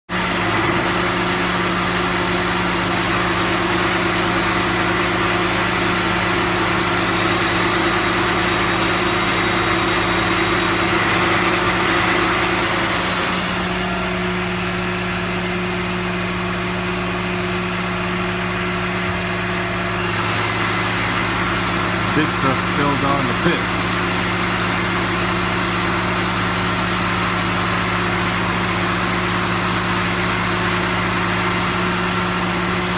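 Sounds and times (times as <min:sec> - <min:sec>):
truck diesel engine idling: 0:00.1 - 0:32.9.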